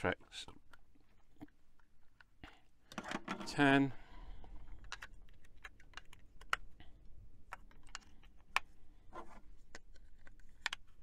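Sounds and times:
plastic clicks and taps: 4.8 - 6.7, 9.7 - 10.9.

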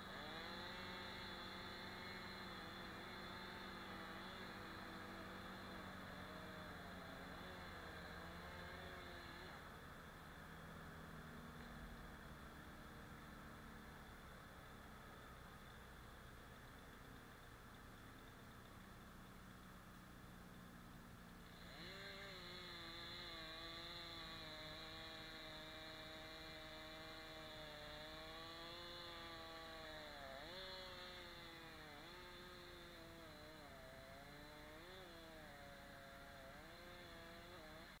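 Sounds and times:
chainsaw revving and cutting: 0.0 - 13.6, 21.3 - 38.0.

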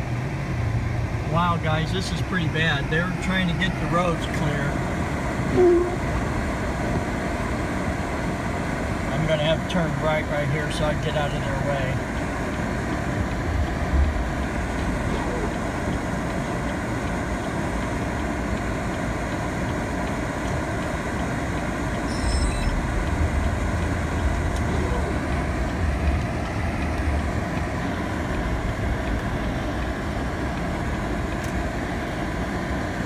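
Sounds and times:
engine and tyre noise in cab: 0.0 - 33.0
heavy low rumble: 1.1 - 7.1, 10.2 - 17.7, 21.8 - 31.3.

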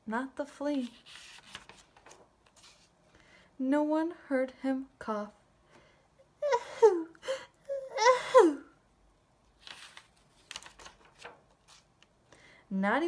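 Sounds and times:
book page turning: 0.7 - 3.0, 9.6 - 12.1.

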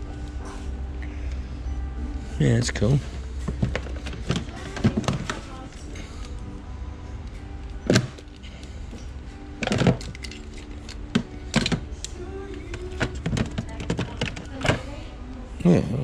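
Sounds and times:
shop background music: 0.0 - 16.0
plastic bag rustling: 3.0 - 6.3
plastic toys clicking: 9.6 - 14.8.

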